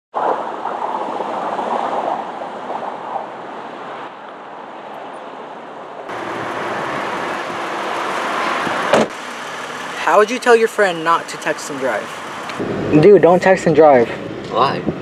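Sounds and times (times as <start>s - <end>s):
wind: 0.1s - 15.0s
road traffic: 3.3s - 15.0s.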